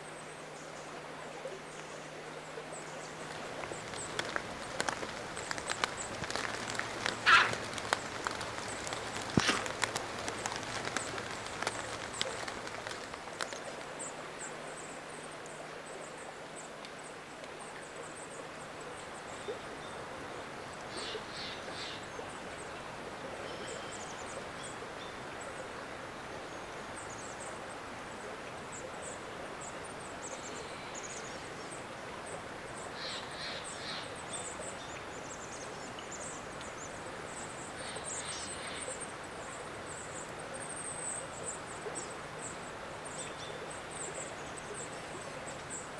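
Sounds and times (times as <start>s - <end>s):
rain: 0.0s - 45.9s
running water: 0.0s - 45.9s
high thin bird calls: 5.6s - 8.4s.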